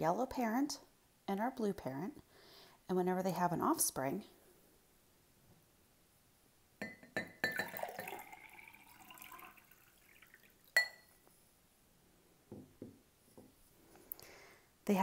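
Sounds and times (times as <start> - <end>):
glasses clinking: 6.8 - 9.6, 10.8 - 11.2
liquid pouring and splashing: 7.5 - 10.8
glasses set down knocking: 12.5 - 13.6.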